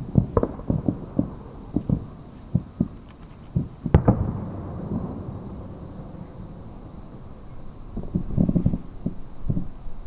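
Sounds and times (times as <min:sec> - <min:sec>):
distant fireworks booming: 0:00.0 - 0:10.0
sharp firework bang: 0:03.8 - 0:06.9.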